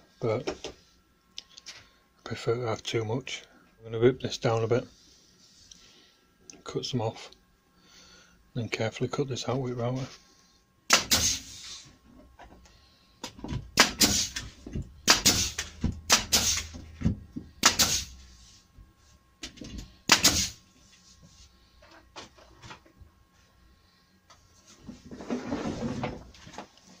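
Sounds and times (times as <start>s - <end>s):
nail gun firing: 10.9s - 11.5s, 13.8s - 14.4s, 15.0s - 16.8s, 17.6s - 18.1s, 20.1s - 20.6s.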